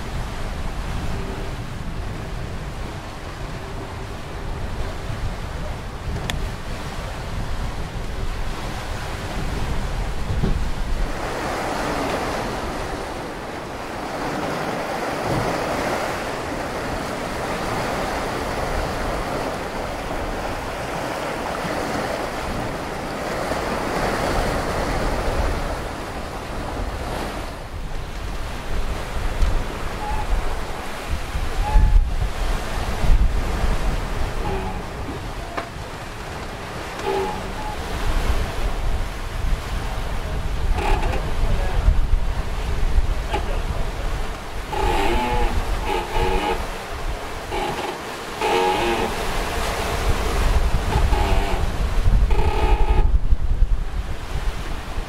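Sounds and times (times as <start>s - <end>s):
water rushing past hull: 0.0s - 55.0s
wind buffeting microphone: 0.0s - 55.0s.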